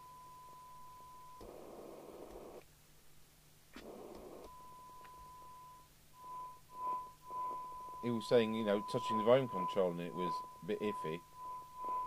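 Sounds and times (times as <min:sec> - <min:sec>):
radio speaker test tone: 0:03.8 - 0:12.0.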